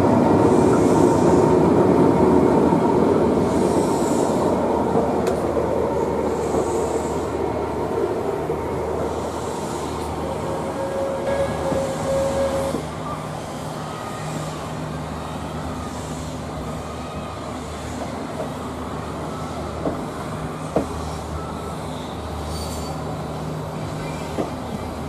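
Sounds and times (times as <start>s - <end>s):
train wheels rumbling on rails: 0.0s - 25.0s
steady high tone: 9.0s - 13.3s.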